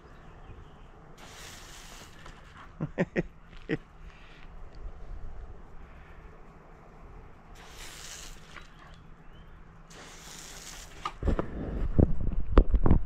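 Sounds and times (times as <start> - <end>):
hose nozzle spraying water: 1.2 - 2.7, 7.5 - 9.0, 9.9 - 11.3.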